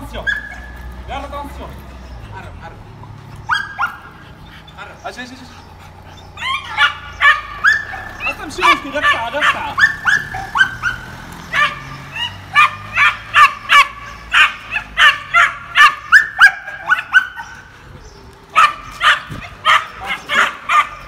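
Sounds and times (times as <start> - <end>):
puppies yapping: 0.0 - 21.0.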